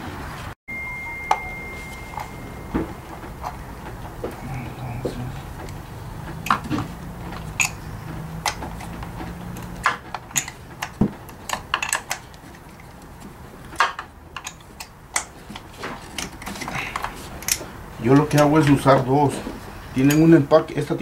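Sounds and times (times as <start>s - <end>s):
low steady hum: 0.7s - 13.6s
hand tools clicking and knocking: 2.1s - 18.9s.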